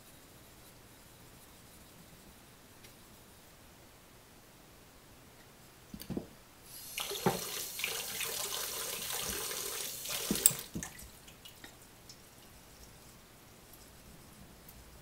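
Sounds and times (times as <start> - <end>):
water splashing in a sink: 6.8 - 11.6.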